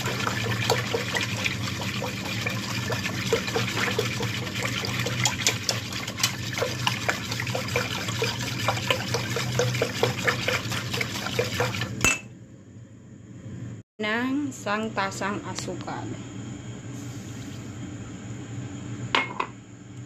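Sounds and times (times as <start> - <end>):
liquid sloshing in a pot: 0.0 - 12.0.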